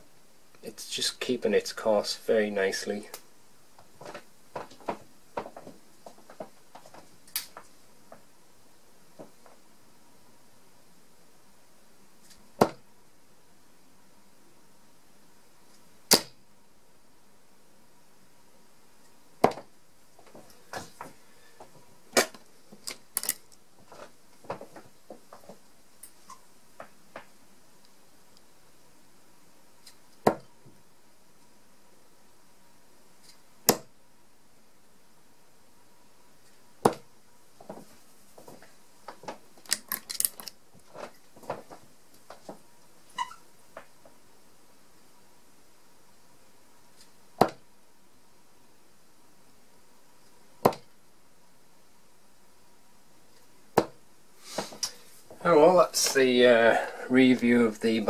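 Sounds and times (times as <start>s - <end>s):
darts striking dartboard: 12.6s - 12.8s, 16.1s - 16.4s, 33.7s - 33.9s, 47.4s - 47.6s, 50.6s - 50.9s, 53.8s - 54.0s
darts pulled from board: 16.1s - 16.4s.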